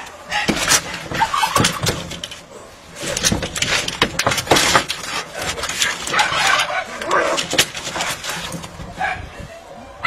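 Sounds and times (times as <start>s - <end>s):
cats scrabbling on metal roof: 0.0s - 9.3s.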